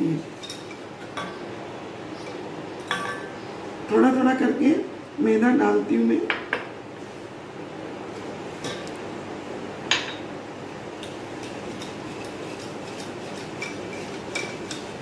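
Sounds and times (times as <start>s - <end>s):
whisk clinking against bowl: 11.0s - 15.0s
whisk stirring batter: 11.3s - 15.0s.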